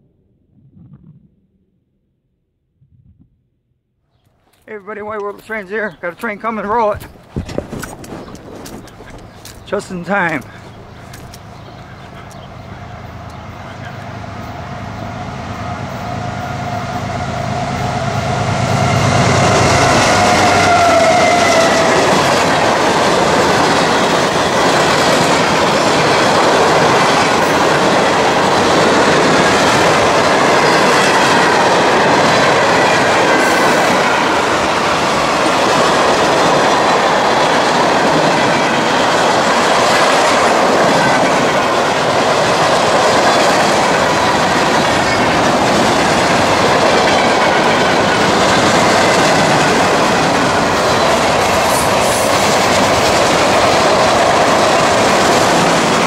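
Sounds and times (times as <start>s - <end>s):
freight cars rumbling and clacking: 4.7s - 14.0s
locomotive engine drone: 8.3s - 56.0s.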